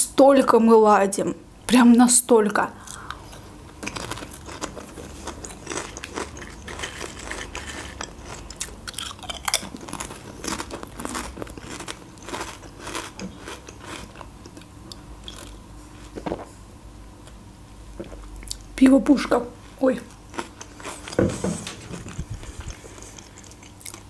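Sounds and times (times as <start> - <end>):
crunchy chewing of chips: 2.8 - 16.6, 19.6 - 24.0.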